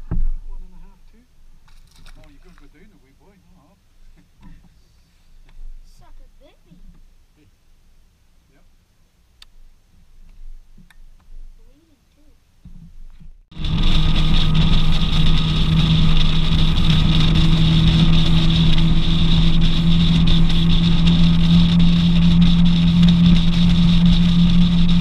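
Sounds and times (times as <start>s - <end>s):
outboard motor running: 13.5s - 25.0s.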